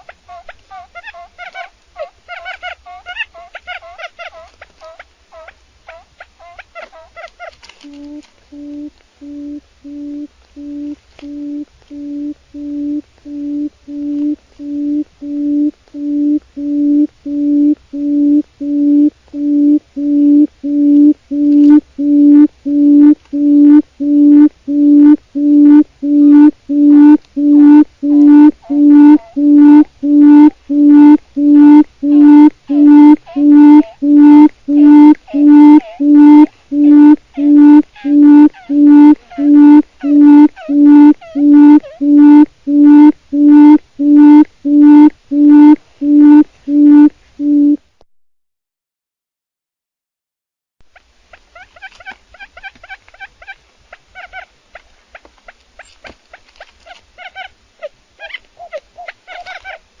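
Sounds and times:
quail chattering calls: 0:00.0 - 0:12.7, 0:26.9 - 0:44.4, 0:51.5 - 0:59.8
low hooting bird note: 0:07.9 - 0:47.7.

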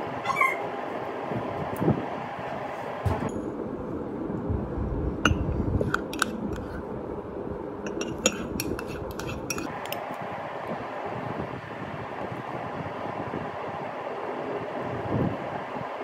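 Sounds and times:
steady background hum: 0:00.0 - 0:16.0
teaspoon clinking against cup: 0:07.9 - 0:10.0.

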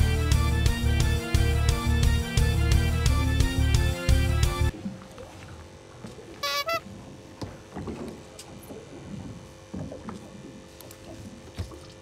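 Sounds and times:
faint steady hum: 0:04.7 - 0:12.0
water lapping against hull: 0:04.7 - 0:12.0.

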